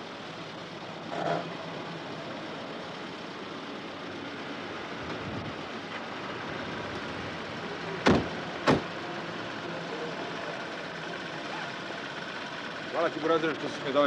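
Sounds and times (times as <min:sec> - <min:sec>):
car doors slamming shut: 0:08.0 - 0:08.9.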